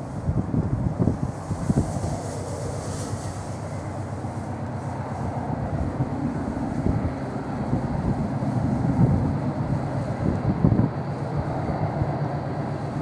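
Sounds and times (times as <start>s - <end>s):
diesel locomotive engine working: 0.0s - 13.0s.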